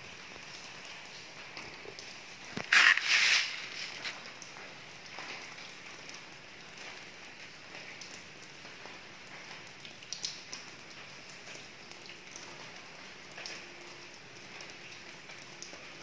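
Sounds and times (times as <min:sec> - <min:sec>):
drips and splashes: 0:00.0 - 0:16.0
steady rain falling: 0:00.0 - 0:16.0.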